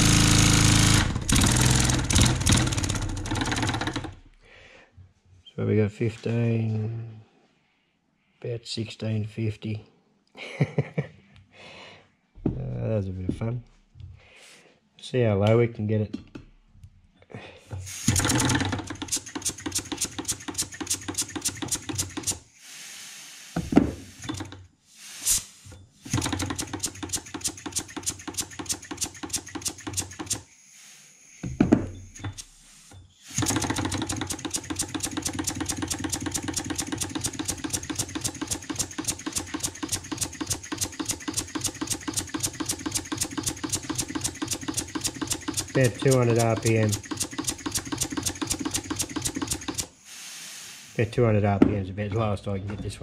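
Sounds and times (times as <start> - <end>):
model steam engine chuffing: 18.0 - 22.4, 26.1 - 30.5, 33.3 - 49.9.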